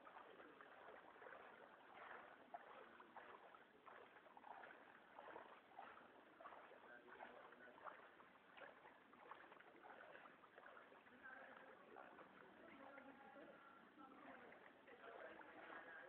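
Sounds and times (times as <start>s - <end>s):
water splashing and sloshing: 0.0s - 16.0s
faint voices: 3.8s - 16.0s.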